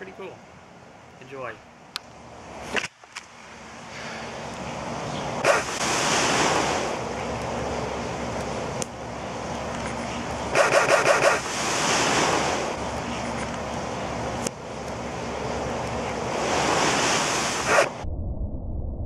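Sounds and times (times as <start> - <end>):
steady rushing noise: 3.6 - 18.1
burst of quick pulses: 5.4 - 6.6
flame igniting with whoosh: 5.4 - 8.9, 10.8 - 13.6.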